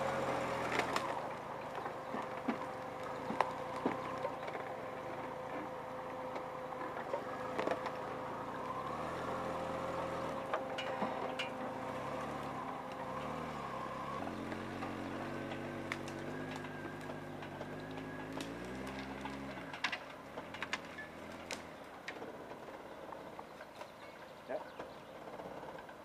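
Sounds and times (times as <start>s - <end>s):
car engine revving: 0.0s - 23.6s
sharp cracks and snaps: 0.5s - 4.8s, 6.3s - 8.8s, 14.3s - 24.0s.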